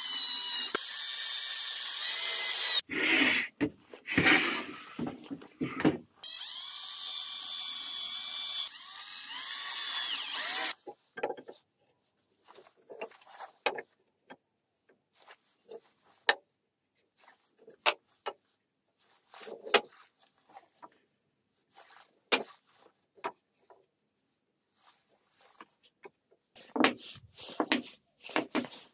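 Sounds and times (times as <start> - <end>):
cordless drill running: 0.0 - 2.8, 6.2 - 10.8.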